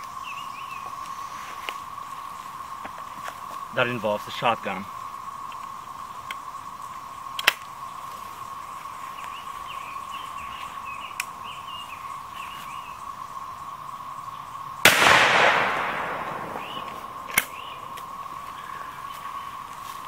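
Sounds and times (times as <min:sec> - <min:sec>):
faint chirps: 0:03.7 - 0:20.0
shotgun blast: 0:14.9 - 0:17.7
sharp click: 0:15.0 - 0:18.1.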